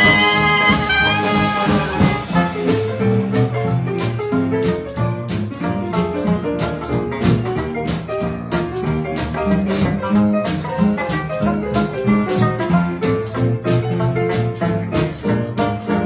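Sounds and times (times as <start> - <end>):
jazz band playing: 0.0 - 16.0.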